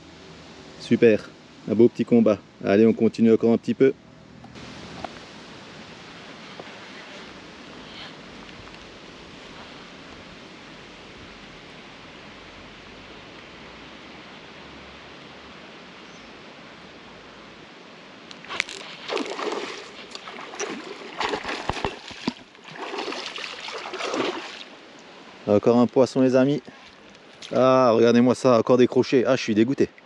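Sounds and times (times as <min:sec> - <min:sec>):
wind and water ambience: 0:00.0 - 0:30.0
fish thrashing and splashing: 0:18.4 - 0:24.8.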